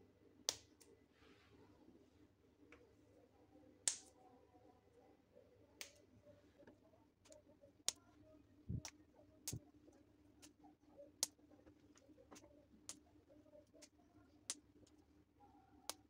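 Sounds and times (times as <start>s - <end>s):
green beans snapping: 3.9s - 4.1s, 8.7s - 9.6s.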